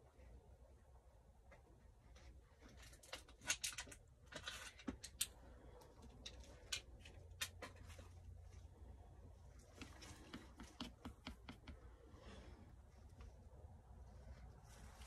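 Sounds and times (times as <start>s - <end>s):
handling clicks and scratches: 2.1s - 8.4s, 9.6s - 11.9s.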